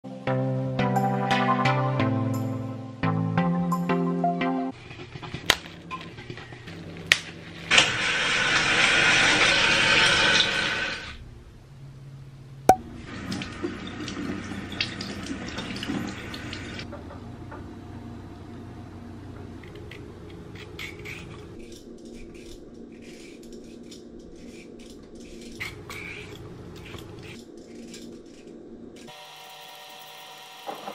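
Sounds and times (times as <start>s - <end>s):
peeler scraping carrot: 20.5s - 28.0s.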